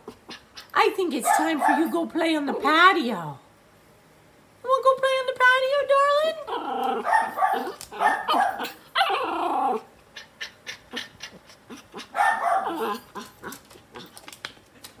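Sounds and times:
puppy growly barking: 0:00.0 - 0:02.0, 0:06.4 - 0:14.2.

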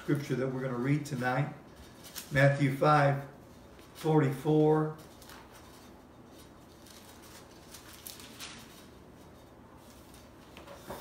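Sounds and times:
paper pages rustling: 0:05.0 - 0:11.0.

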